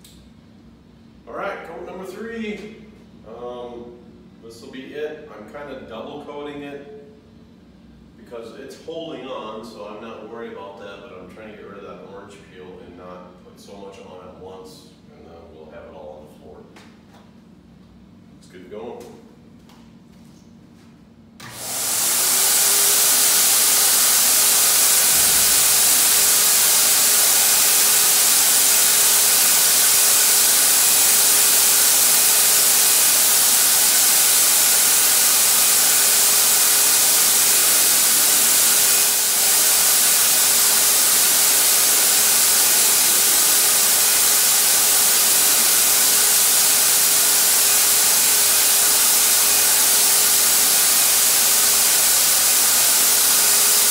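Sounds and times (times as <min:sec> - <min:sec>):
paint sprayer motor whine: 0:21.4 - 0:53.9.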